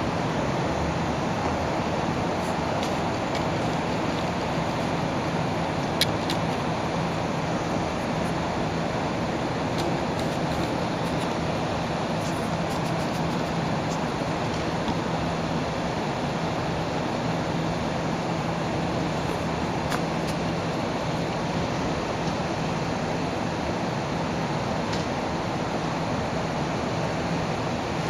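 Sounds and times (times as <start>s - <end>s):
outdoor background rush: 0.0s - 28.0s.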